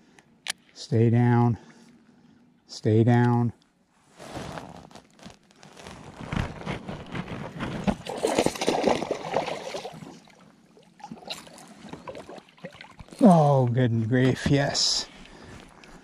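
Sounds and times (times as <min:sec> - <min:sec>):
water splashing and sloshing: 0:05.7 - 0:16.0.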